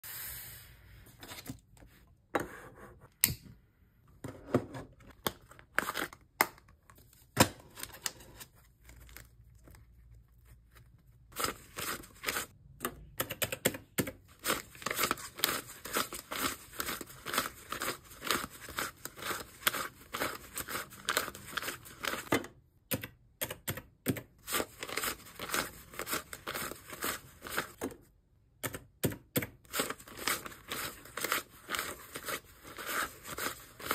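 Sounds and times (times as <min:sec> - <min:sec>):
banknotes rustling being counted: 0:11.3 - 0:12.6, 0:14.2 - 0:22.3, 0:24.4 - 0:27.8, 0:29.5 - 0:33.9.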